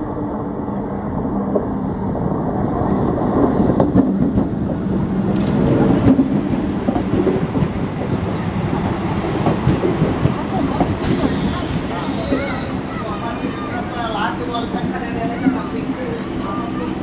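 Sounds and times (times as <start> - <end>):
train rumbling past: 0.0 - 17.0
high-pitched wheel squeals: 7.7 - 13.4.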